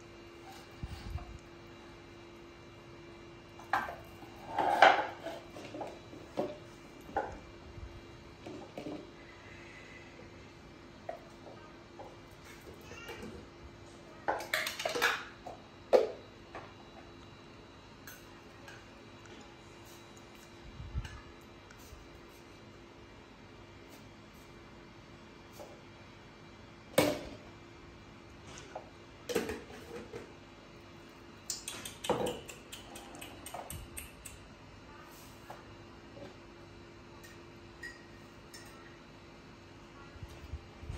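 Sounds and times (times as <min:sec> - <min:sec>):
kitchenware clinking: 0:37.2 - 0:38.8.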